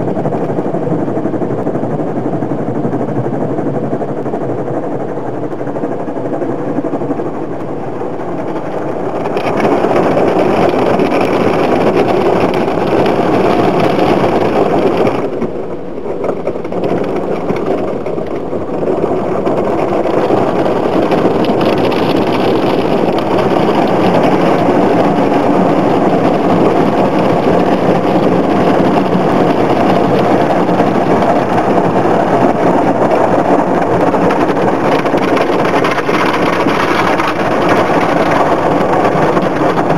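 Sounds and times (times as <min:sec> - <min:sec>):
car wash machinery running: 0:03.0 - 0:39.9.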